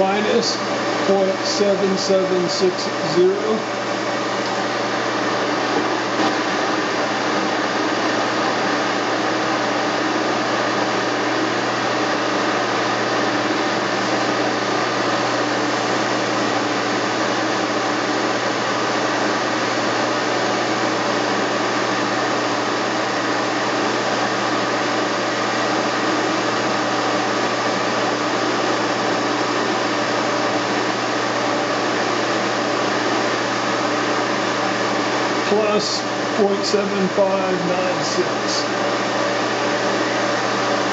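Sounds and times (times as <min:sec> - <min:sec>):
milling machine motor whir: 0:00.0 - 0:40.9.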